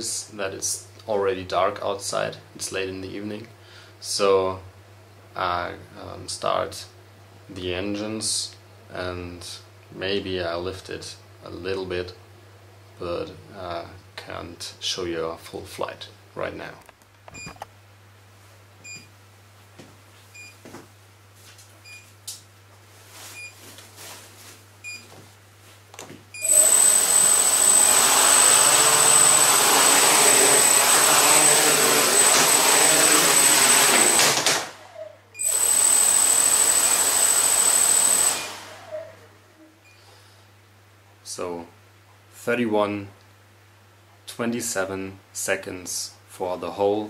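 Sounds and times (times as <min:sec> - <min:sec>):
quadcopter propellers whirring: 0:26.4 - 0:39.2.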